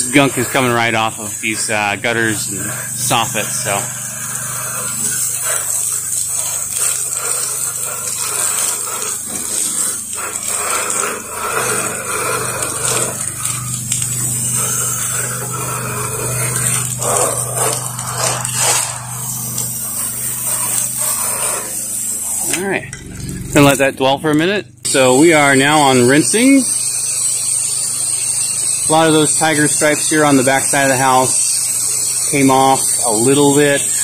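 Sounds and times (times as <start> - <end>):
pressure washer jet hissing: 0.0 - 23.9, 24.9 - 34.0
machine humming: 0.0 - 34.0
water splashing against gutter: 0.1 - 22.1.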